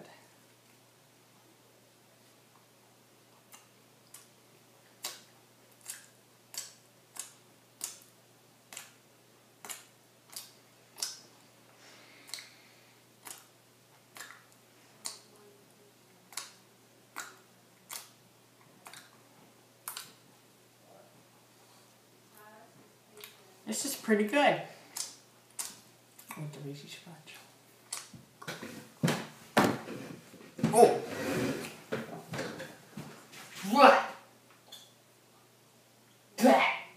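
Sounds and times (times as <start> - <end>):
person chewing sticky food: 3.3 - 9.0, 9.6 - 11.3, 12.1 - 15.3, 16.3 - 20.3, 24.8 - 26.5, 27.3 - 28.7
mouth clicks and smacks: 3.4 - 9.0, 9.6 - 11.3, 12.2 - 12.6, 13.2 - 15.3, 16.3 - 19.2, 19.8 - 20.3, 24.9 - 26.5, 27.3 - 28.6.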